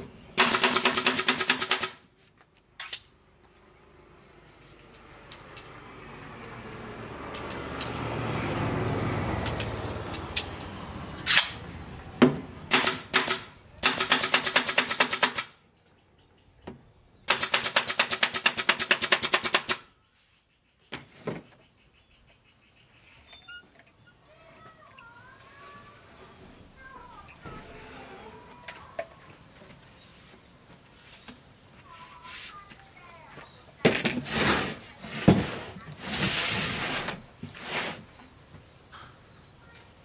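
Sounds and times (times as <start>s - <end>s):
pneumatic nail gun firing: 0.4s - 2.0s, 12.7s - 15.6s, 17.3s - 19.9s.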